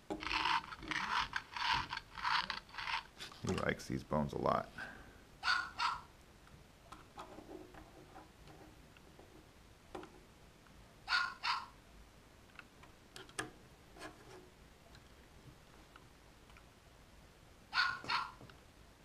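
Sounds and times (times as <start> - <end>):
dog barks through small speaker: 5.4 - 6.1, 11.1 - 11.8, 17.7 - 18.4.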